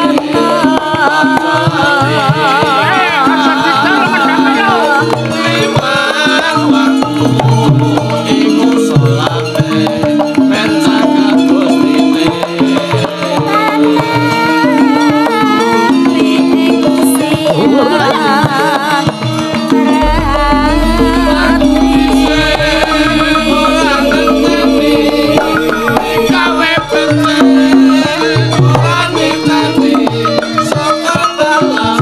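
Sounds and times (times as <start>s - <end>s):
woman singing: 0.0s - 7.9s, 13.4s - 32.0s
hand drum: 0.0s - 32.0s
gamelan music: 3.0s - 17.0s, 19.5s - 32.0s
deep low note: 20.0s - 28.1s.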